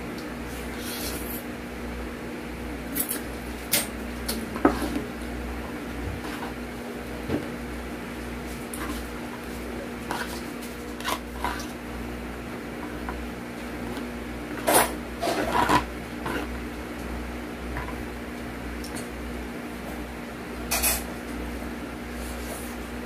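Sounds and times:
wooden fork scraping a plate: 4.6s - 5.0s, 6.2s - 6.6s, 10.1s - 11.8s, 14.7s - 16.6s.

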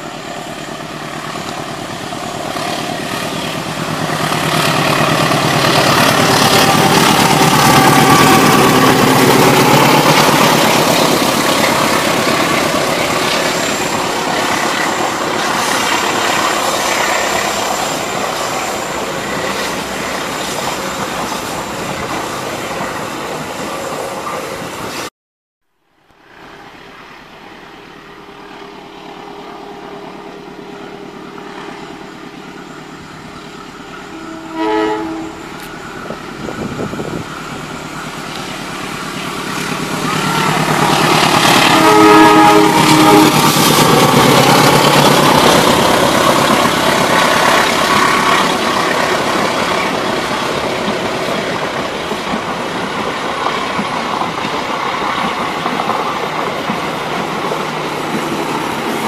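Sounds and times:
train carriages rumbling and clattering: 0.0s - 25.1s, 35.4s - 59.0s
train horn blasts: 34.0s - 37.2s, 40.0s - 44.0s.

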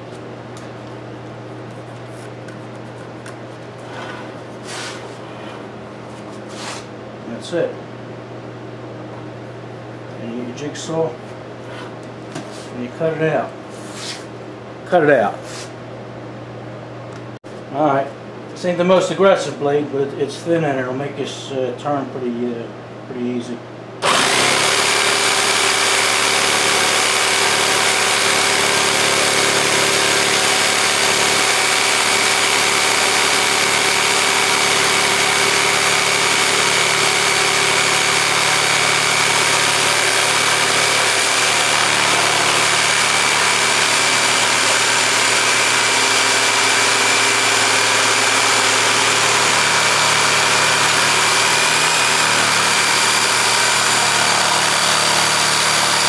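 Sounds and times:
jigsaw cutting wood: 24.0s - 56.0s.

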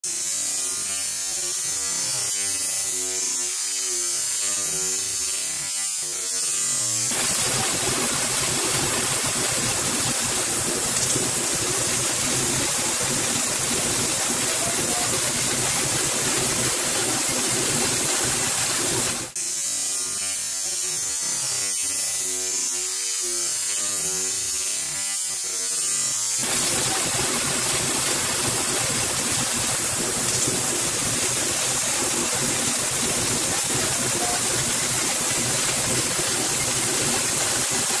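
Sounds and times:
laser cutting jet hissing: 6.5s - 19.4s, 26.4s - 38.0s.

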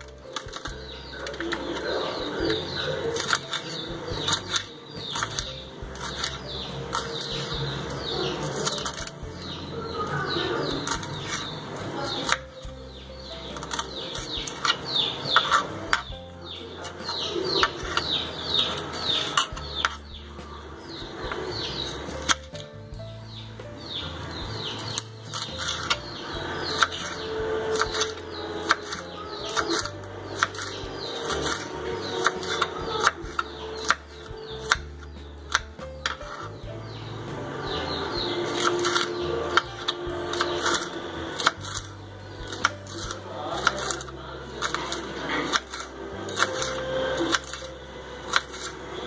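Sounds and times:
knife slicing pepper: 42.5s - 47.6s.

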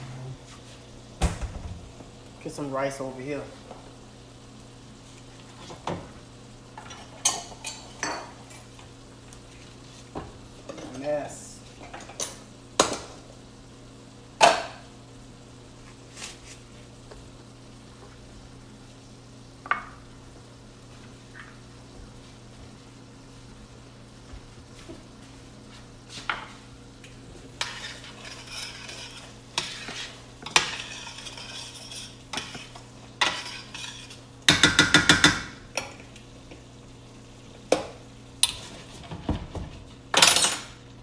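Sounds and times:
steady low hum: 0.0s - 34.5s
pots and utensils clinking: 6.8s - 8.7s, 27.6s - 36.1s, 40.1s - 40.8s.

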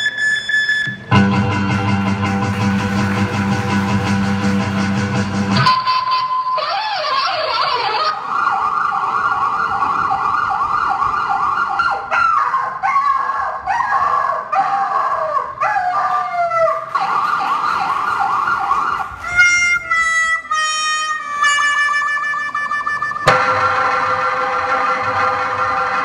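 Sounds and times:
siren wailing over loudspeaker: 0.0s - 1.4s, 5.5s - 14.1s, 15.7s - 26.0s.

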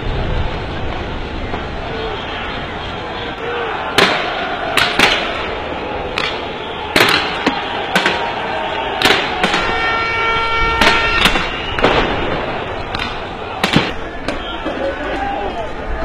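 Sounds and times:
crowd din: 1.0s - 16.0s
sharp explosive bangs: 3.9s - 9.9s, 10.7s - 14.4s.

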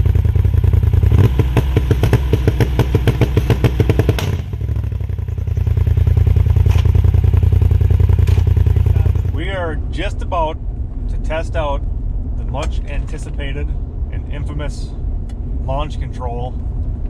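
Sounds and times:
rapid exhaust pops: 0.0s - 9.5s
engine idling: 0.0s - 11.4s.

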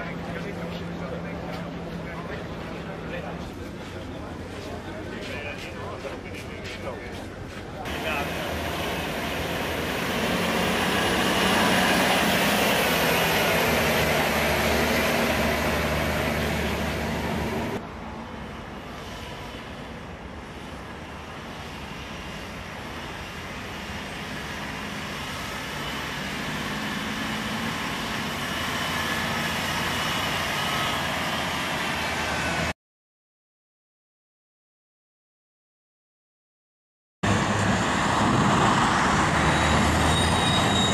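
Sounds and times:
truck diesel engine running: 7.9s - 17.8s.

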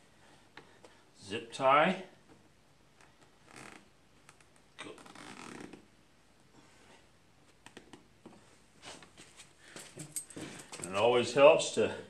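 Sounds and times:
zip tie rasping: 3.1s - 5.9s.

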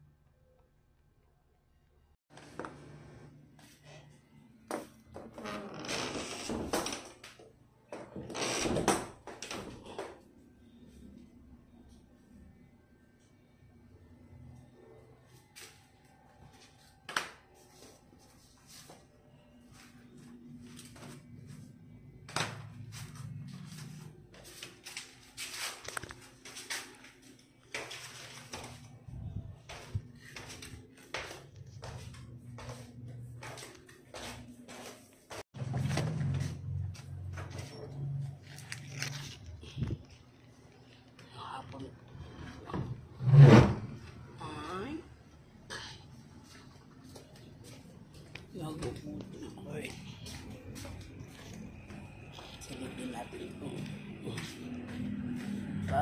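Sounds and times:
footsteps scuffing: 22.3s - 37.8s, 49.9s - 52.7s.

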